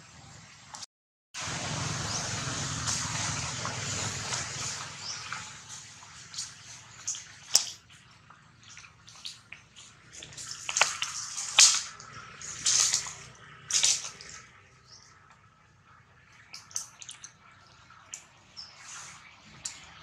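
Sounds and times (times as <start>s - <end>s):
monkey slurping water: 2.7s - 14.6s, 16.2s - 20.0s.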